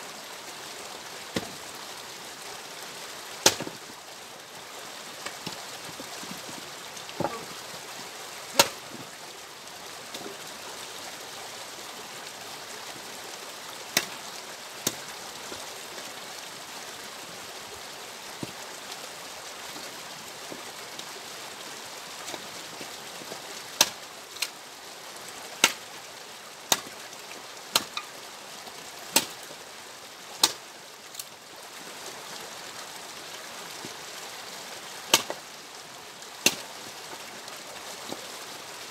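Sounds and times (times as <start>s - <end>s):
axe splitting firewood: 3.4s - 3.7s, 7.2s - 7.5s, 8.6s - 8.8s, 23.8s - 24.5s, 25.6s - 25.8s, 26.7s - 26.9s, 27.7s - 28.0s, 29.2s - 29.4s, 30.4s - 30.6s, 35.1s - 35.4s, 36.4s - 36.6s.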